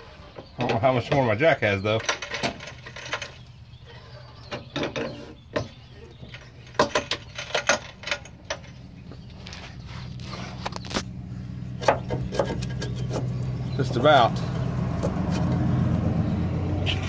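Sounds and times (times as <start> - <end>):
steady low hum: 2.6 - 17.0
jack clicking and knocking: 4.5 - 8.8, 11.8 - 13.5.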